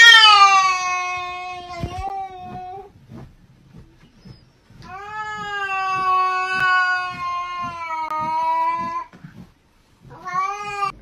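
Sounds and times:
cat yowling: 0.0 - 2.8, 4.9 - 9.1.

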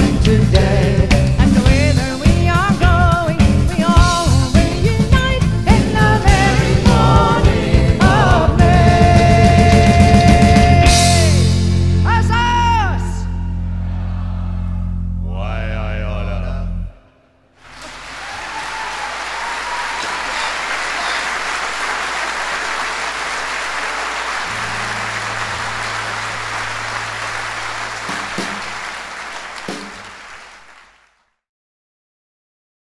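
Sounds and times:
heavy rain hissing: 17.6 - 31.0.

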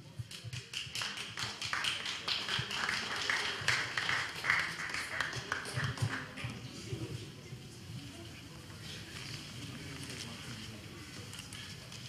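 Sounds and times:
sharp claps and clicks: 0.2 - 6.5.

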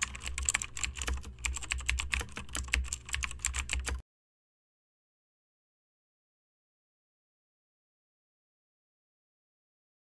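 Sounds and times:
keyboard key clicks: 0.0 - 4.0.

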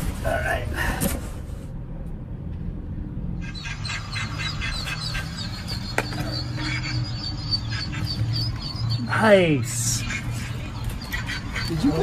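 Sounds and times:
steady low hum: 0.0 - 12.0
ducklings peeping: 3.4 - 12.0.

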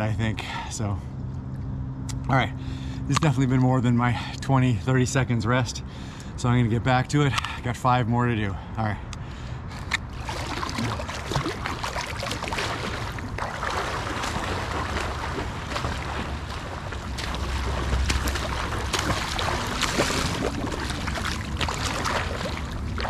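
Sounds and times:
pool water splashing: 9.8 - 23.0.

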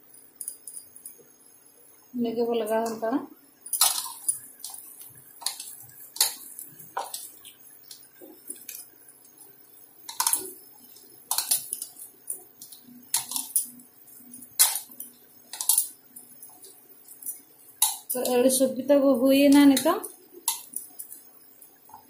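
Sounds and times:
bangles clinking: 0.0 - 1.2.

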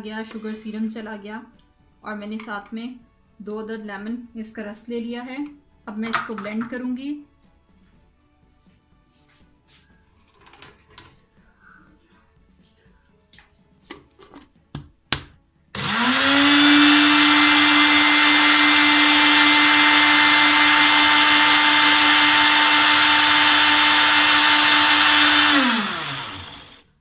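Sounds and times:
blender motor running: 15.8 - 26.9.

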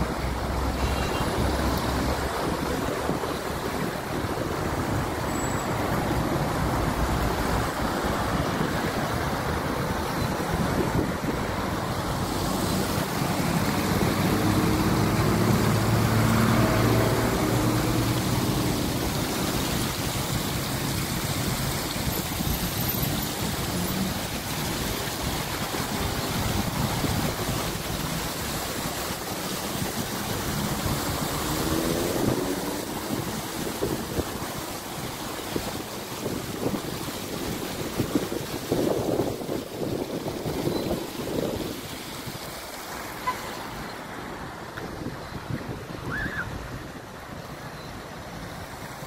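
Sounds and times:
wind on microphone: 0.0 - 42.6
fountain water splashing: 0.0 - 49.0
vehicle accelerating: 11.8 - 25.0, 29.5 - 33.8
vehicle engine passing: 12.0 - 21.9, 30.1 - 33.6.

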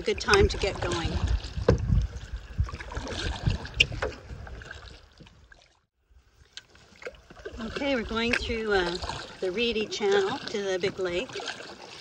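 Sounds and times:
wind on microphone: 0.0 - 5.4, 7.4 - 11.4
canoe paddling in water: 0.0 - 12.0.

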